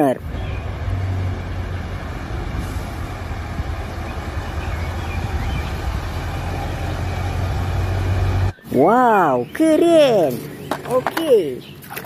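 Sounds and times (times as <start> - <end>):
truck diesel engine humming: 0.0 - 8.6.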